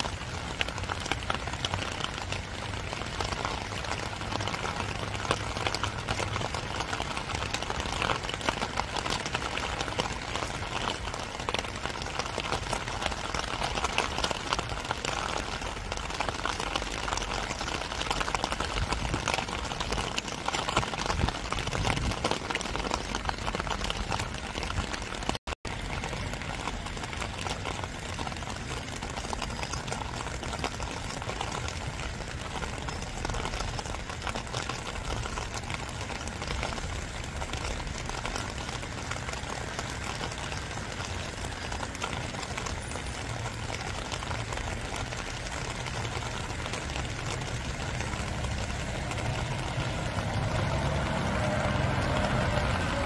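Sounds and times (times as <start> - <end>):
rain patter: 0.0 - 53.0.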